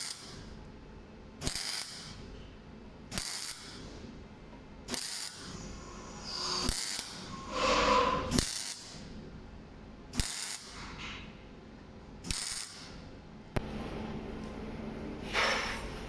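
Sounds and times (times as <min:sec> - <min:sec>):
welding arc crackling: 0:00.0 - 0:00.5, 0:01.4 - 0:02.2, 0:03.1 - 0:03.9, 0:04.9 - 0:09.1, 0:10.1 - 0:10.9, 0:12.2 - 0:13.0.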